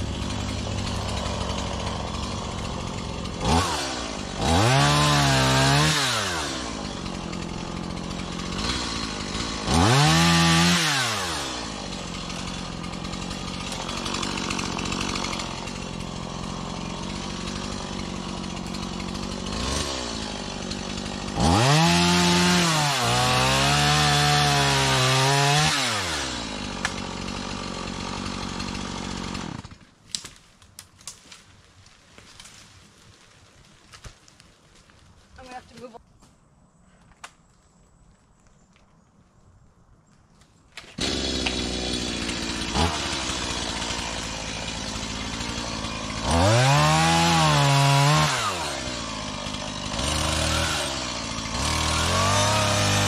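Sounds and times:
chainsaw idling and revving: 0.0 - 30.0, 40.8 - 53.0.

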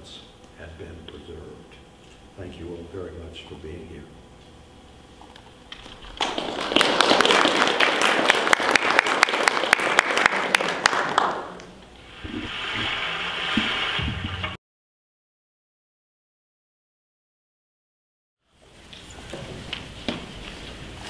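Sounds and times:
audience applauding: 6.0 - 11.8.

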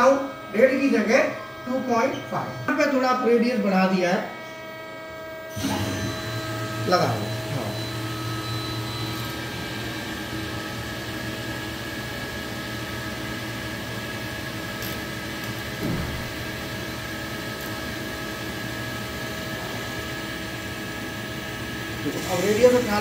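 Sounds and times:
lathe machine hum and whine: 0.0 - 23.0
brief falling whine: 4.3 - 11.2.

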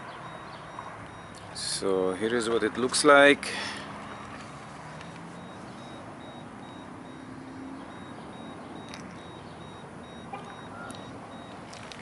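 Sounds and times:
high electronic beeps: 0.1 - 1.5, 4.1 - 4.4, 5.0 - 11.6.

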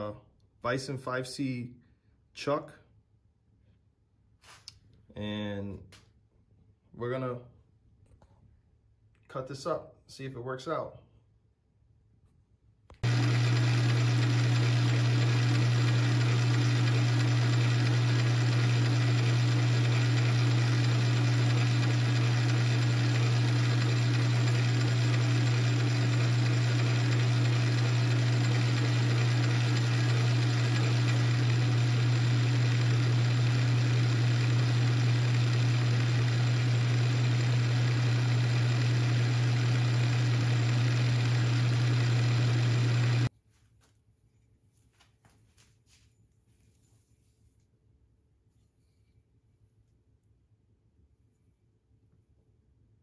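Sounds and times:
lathe running: 13.0 - 43.3.

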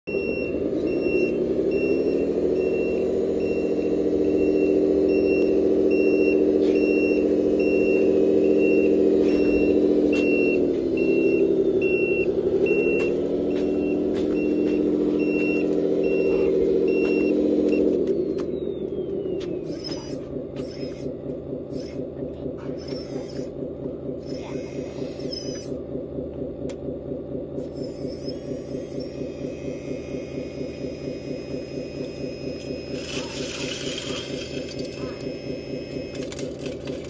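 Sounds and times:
simulated truck engine: 0.0 - 37.0
high reversing beep: 0.1 - 22.1, 22.7 - 25.8, 27.6 - 36.8.

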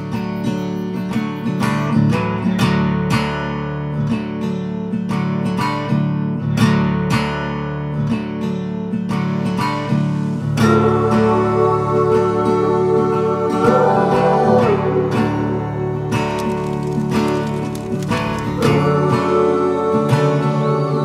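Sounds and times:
acoustic guitar strumming: 0.0 - 11.7, 13.0 - 20.8.

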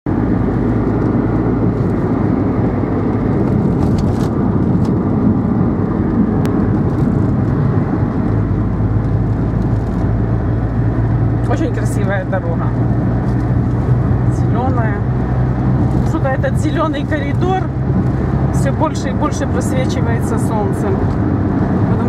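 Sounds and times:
car engine and tyre rumble: 0.0 - 22.0.

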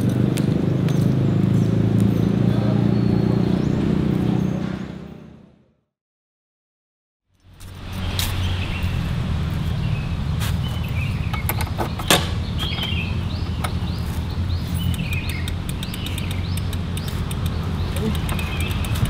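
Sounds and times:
birds chirping: 0.5 - 5.4, 7.4 - 19.0
steady low rumble: 7.4 - 19.0
light clicks: 14.7 - 19.0.

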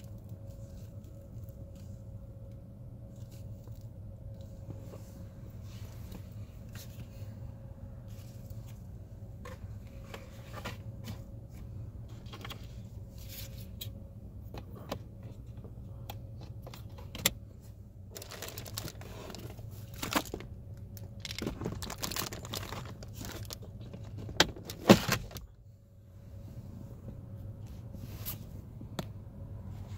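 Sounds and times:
steady low hum: 0.0 - 29.9
plastic rustling and scraping: 3.1 - 13.9, 18.1 - 25.5.

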